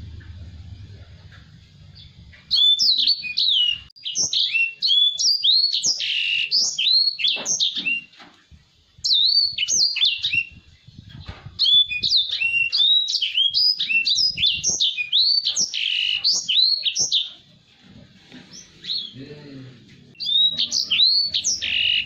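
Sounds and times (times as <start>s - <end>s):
finch singing high sweeping notes: 20.2s - 22.0s.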